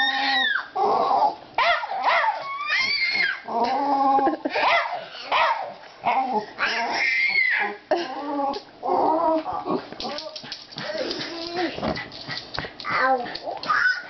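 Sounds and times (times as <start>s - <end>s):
dog whining and yipping: 0.0s - 3.5s, 6.0s - 7.8s, 12.9s - 14.0s.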